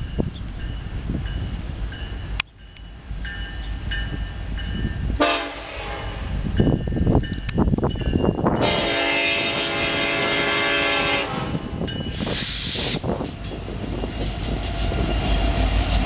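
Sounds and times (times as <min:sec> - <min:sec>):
crossing bell dinging: 0:00.0 - 0:09.3, 0:11.0 - 0:12.3
locomotive air horn blast: 0:05.2 - 0:06.3, 0:08.6 - 0:13.0.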